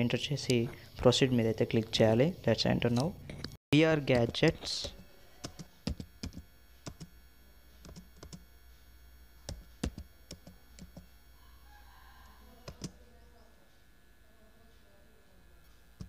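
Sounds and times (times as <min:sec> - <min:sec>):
keyboard keys clicking: 0:12.7 - 0:12.9.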